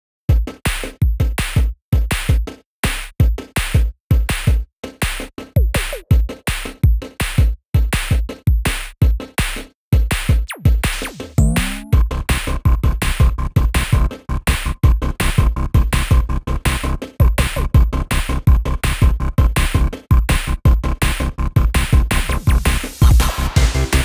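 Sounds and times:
electronic drum machine music: 10.5s - 12.0s, 22.4s - 24.0s.

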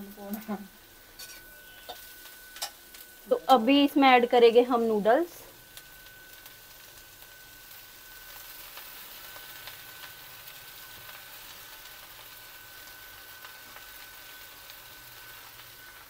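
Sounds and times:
faint vegetable sizzle: 0.0s - 16.0s
thin high-pitched tone: 1.2s - 5.5s.

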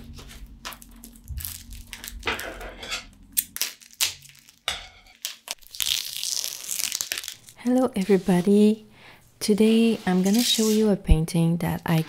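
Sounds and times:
wrapping crinkling and rustling: 0.1s - 2.6s, 3.4s - 8.7s.

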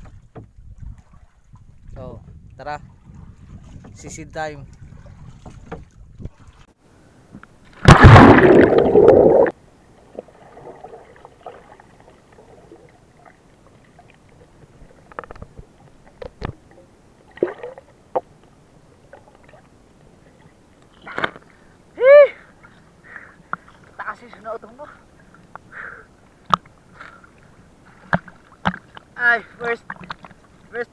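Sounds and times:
muffled underwater water sound: 0.0s - 21.8s, 22.6s - 30.9s
water and bubbles rushing: 7.7s - 18.3s.

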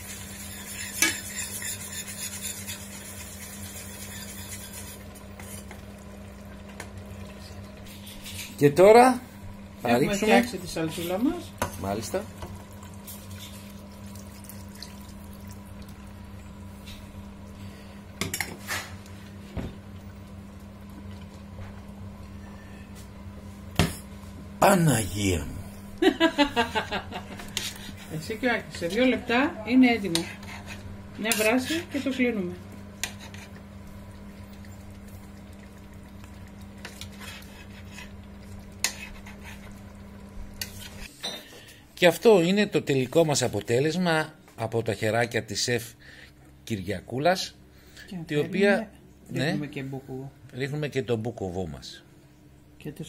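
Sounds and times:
steady low hum: 0.0s - 42.0s
sauce pouring into a pot: 12.6s - 16.0s.

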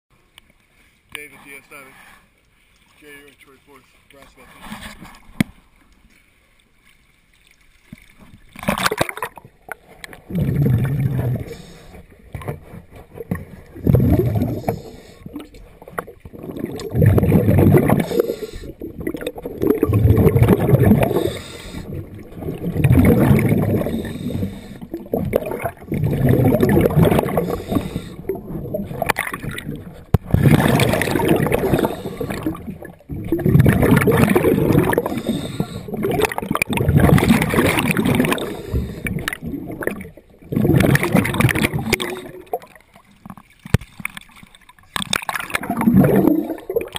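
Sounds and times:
bubbles gurgling: 8.4s - 46.9s
diver breathing through regulator: 10.3s - 12.1s, 13.8s - 15.4s, 17.1s - 18.9s, 19.8s - 22.2s, 23.0s - 25.0s, 26.1s - 29.1s, 29.7s - 32.7s, 34.5s - 36.2s, 37.9s - 39.5s.

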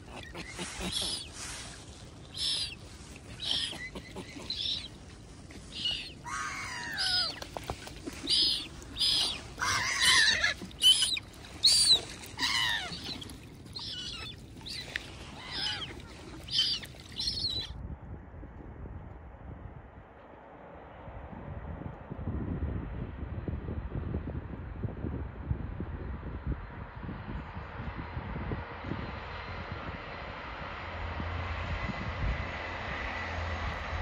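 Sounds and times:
lower longer bird calls: 0.0s - 7.4s, 8.0s - 17.7s
short high bird calls: 0.1s - 5.0s, 5.7s - 7.4s, 8.2s - 17.7s.

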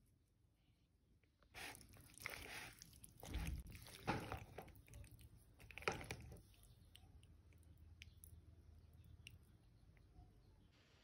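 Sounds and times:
spoon stirring pasta in bowl: 1.6s - 8.2s.

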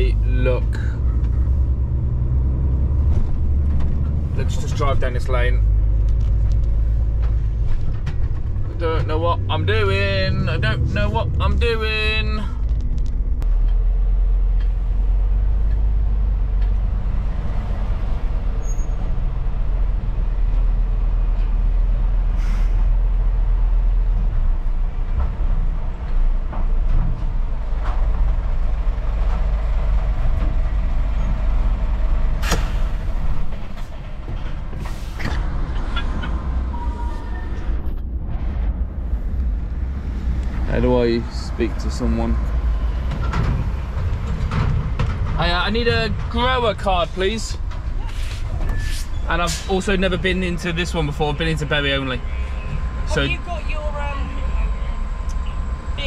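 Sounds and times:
diesel truck engine rumbling: 0.0s - 56.0s
air brakes hissing: 22.3s - 23.0s, 32.4s - 33.4s, 34.8s - 35.5s, 48.0s - 49.9s.

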